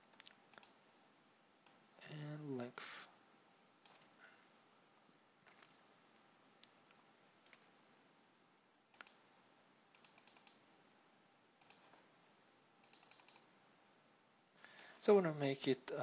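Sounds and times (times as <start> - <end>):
low hiss: 0.0 - 16.0
computer mouse clicks: 0.1 - 0.8, 3.8 - 4.2, 5.4 - 7.8, 8.9 - 9.2, 9.9 - 10.6, 11.6 - 12.0, 12.8 - 13.5.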